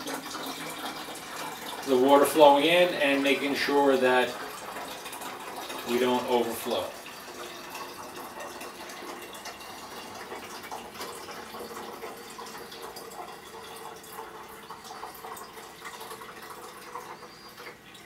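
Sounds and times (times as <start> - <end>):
water trickling through a funnel: 0.0 - 18.0.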